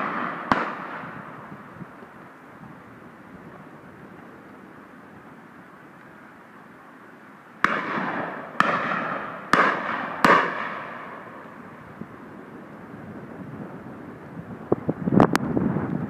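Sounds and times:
shotgun shots with echo: 0.0 - 1.2, 7.6 - 11.2.

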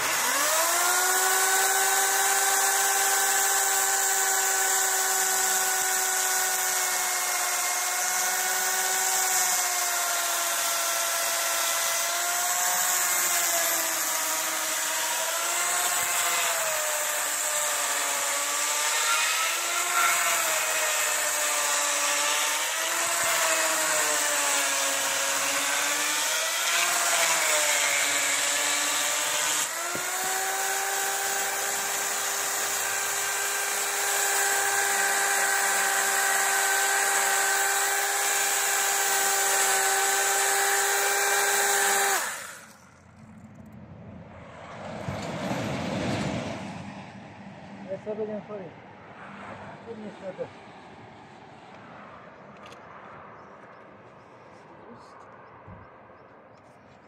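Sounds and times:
electric power tool motor running: 0.0 - 43.0.

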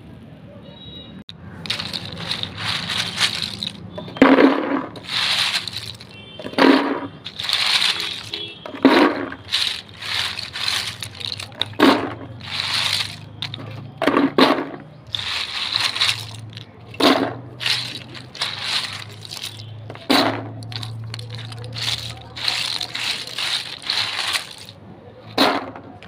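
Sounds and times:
dried crisps rattling into tub: 1.5 - 24.8.

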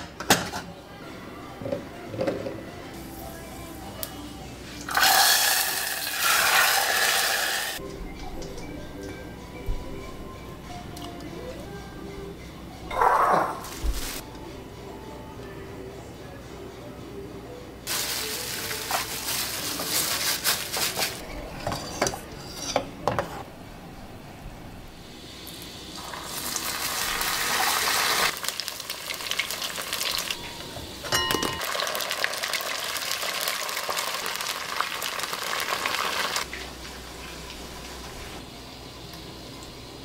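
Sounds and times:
vegetables sizzling in oil: 4.9 - 7.8, 25.1 - 31.0, 31.6 - 38.1.

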